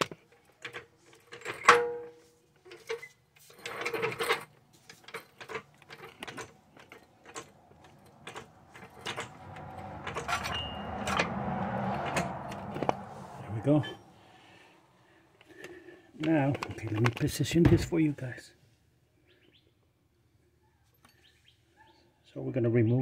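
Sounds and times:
hand tools clicking and clanking: 0.0s - 13.0s
metal rattling and scraping: 0.0s - 14.2s.

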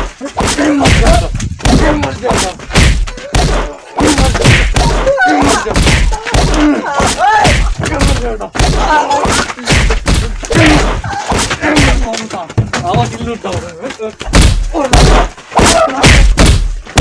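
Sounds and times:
heavy punching thuds: 0.0s - 13.1s, 14.2s - 17.0s
people shouting and grunting: 0.0s - 17.0s.

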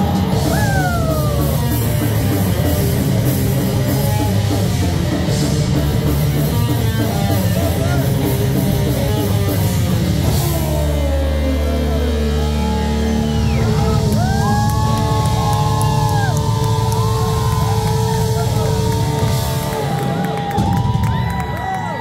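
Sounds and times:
bass guitar: 0.0s - 22.0s
distorted electric guitar: 0.0s - 22.0s
drum kit: 0.0s - 22.0s.

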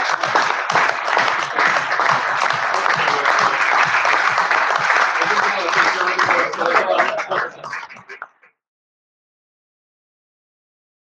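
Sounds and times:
audience applause: 0.0s - 8.4s.

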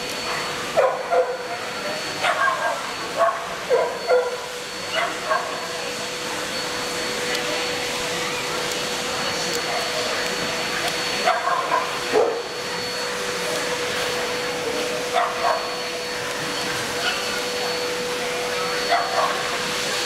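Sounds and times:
constant hum: 0.0s - 20.0s
dogs barking: 0.8s - 5.6s, 10.9s - 12.5s, 15.1s - 15.8s, 17.0s - 17.5s, 18.8s - 19.6s.

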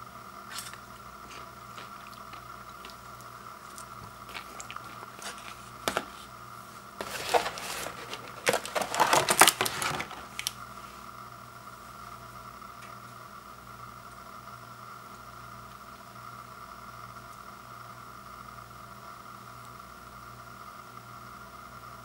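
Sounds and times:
paper popcorn bag crinkling: 0.6s - 6.3s, 7.0s - 10.6s.

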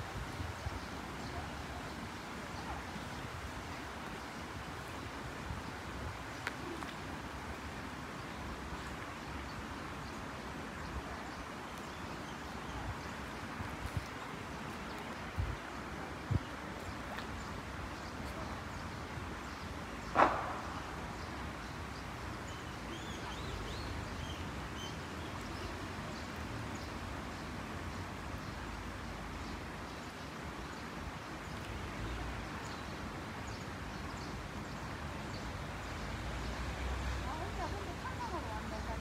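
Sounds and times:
stream ambience with low rumble: 0.0s - 39.0s
short loud sound: 20.2s - 21.0s.

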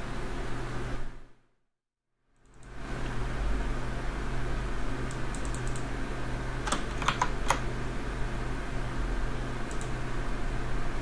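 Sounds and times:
computer cooling fans whirring: 0.0s - 1.4s, 2.3s - 11.0s
sharp clicks: 5.1s - 5.9s, 9.7s - 10.0s.

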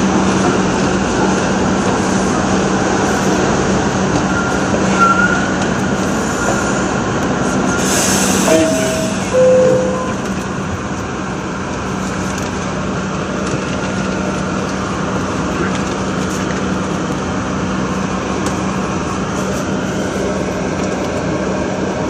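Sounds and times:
subway car equipment hum: 0.0s - 22.0s
two-note falling chime: 8.4s - 10.4s.

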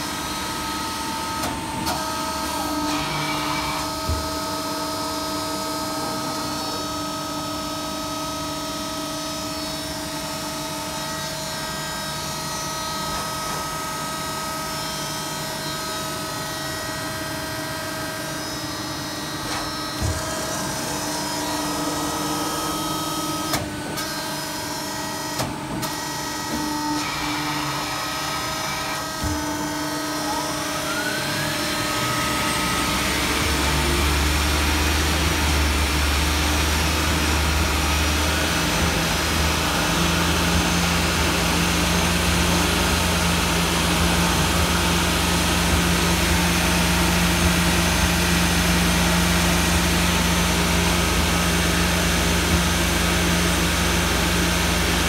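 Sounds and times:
lathe motor humming: 27.1s - 55.0s.

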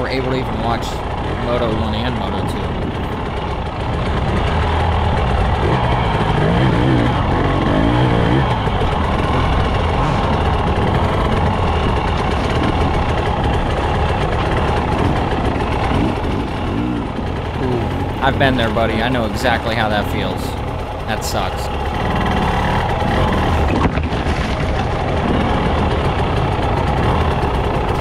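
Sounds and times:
dirt bike engine revving: 0.0s - 28.0s
rattling: 0.0s - 28.0s
wind noise: 1.4s - 4.7s, 22.9s - 28.0s.

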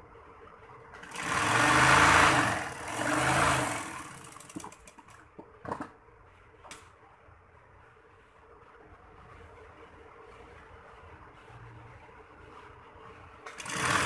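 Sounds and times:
sewing machine stitching: 1.0s - 5.1s, 13.5s - 14.0s.

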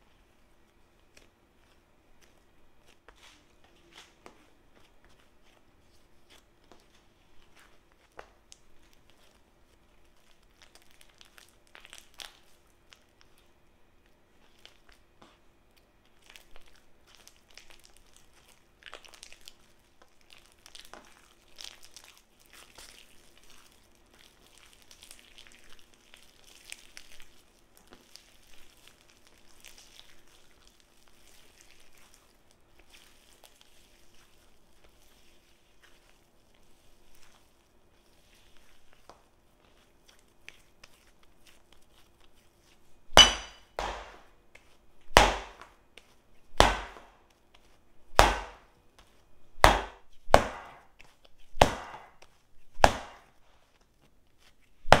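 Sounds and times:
dough squishing: 0.0s - 55.0s
dough slapping on counter: 43.1s - 47.1s, 48.1s - 53.4s.

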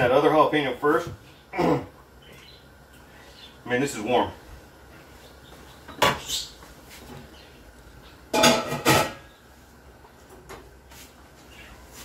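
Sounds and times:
metal lid clanking against pot: 8.4s - 9.2s.

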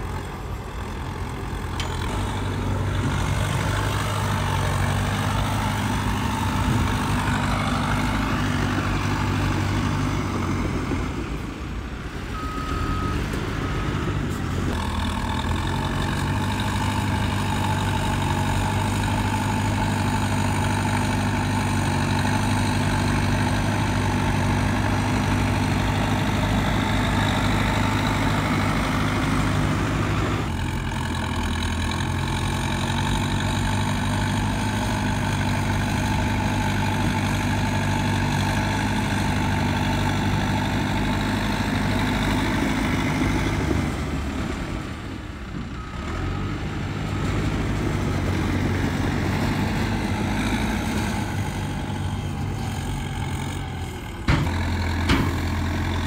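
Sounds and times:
heavy diesel engine running: 0.0s - 56.0s
short high beeps: 12.4s - 13.2s.

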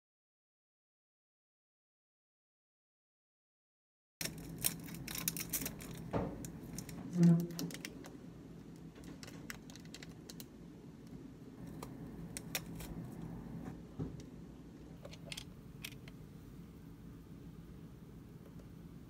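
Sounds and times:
wrapper crinkling: 4.2s - 10.5s.

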